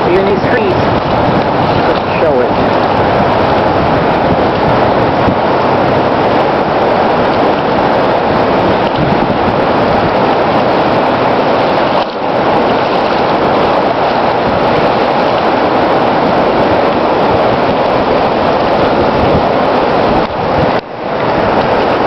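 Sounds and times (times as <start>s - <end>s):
floodwater rushing: 0.0s - 22.0s.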